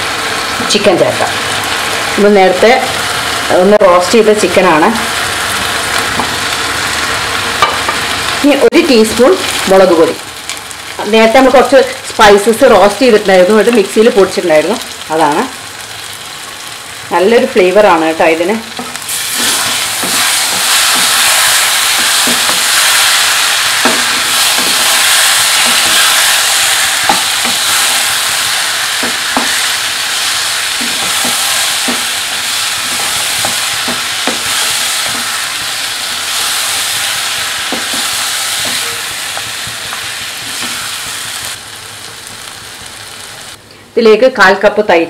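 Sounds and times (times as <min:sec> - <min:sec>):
food sizzling in hot oil: 0:00.0 - 0:43.6
spatula scraping and knocking pan: 0:18.8 - 0:41.5.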